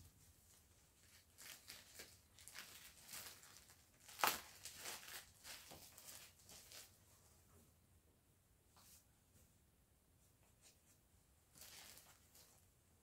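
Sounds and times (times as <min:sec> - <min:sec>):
yarn rustling and tapping: 0:00.1 - 0:07.0.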